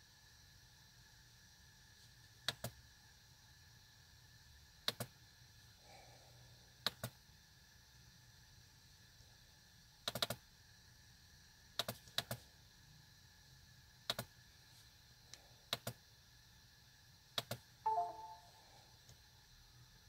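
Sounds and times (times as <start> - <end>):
short computer chime: 17.9 - 18.5.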